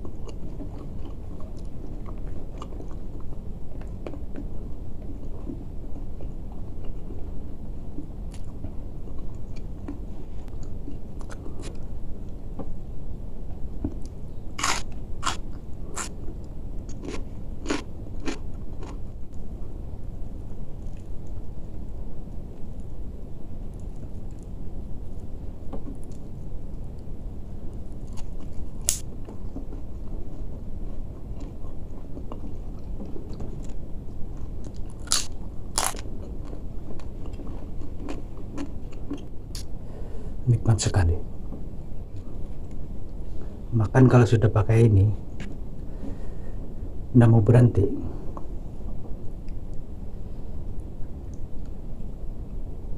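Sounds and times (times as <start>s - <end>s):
person chewing crisp food: 0.0s - 7.2s, 8.0s - 11.9s, 14.0s - 19.4s, 20.8s - 21.4s, 27.8s - 39.7s
low background hum: 0.0s - 52.9s
loud crunches: 14.6s - 16.2s, 16.9s - 19.0s, 34.6s - 37.4s.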